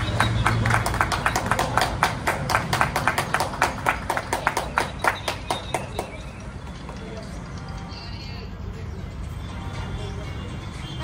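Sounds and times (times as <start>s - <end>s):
hands clapping quickly: 0.0s - 6.2s.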